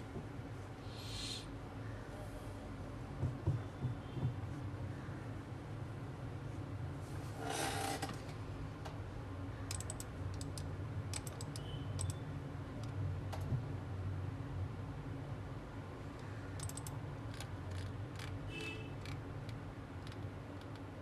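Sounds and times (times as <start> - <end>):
keyboard and mouse clicks: 9.7 - 12.2, 16.6 - 18.4, 19.0 - 20.9.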